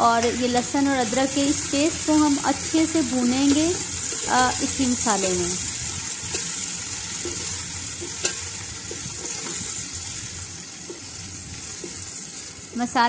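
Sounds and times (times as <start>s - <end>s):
onions sizzling in ghee: 0.0s - 13.0s
spatula stirring and scraping: 5.8s - 12.6s.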